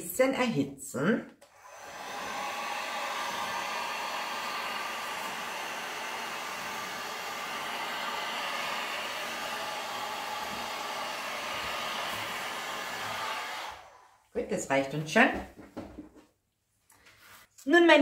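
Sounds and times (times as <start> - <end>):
heat gun blowing air: 1.5 - 14.2.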